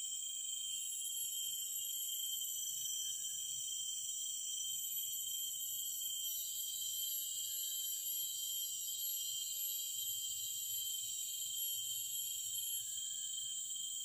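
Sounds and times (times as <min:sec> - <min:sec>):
crickets and cicadas chorus: 0:00.0 - 0:14.0.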